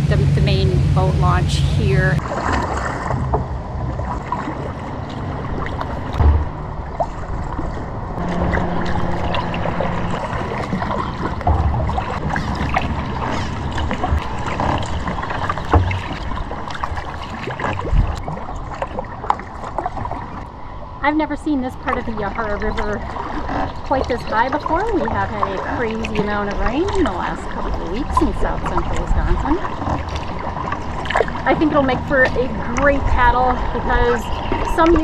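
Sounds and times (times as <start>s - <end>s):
paddle and hull water sounds: 0.0s - 35.0s
water drips and splashes: 2.2s - 21.0s, 21.7s - 35.0s
wind thumps on microphone: 6.0s - 16.5s, 17.6s - 18.4s.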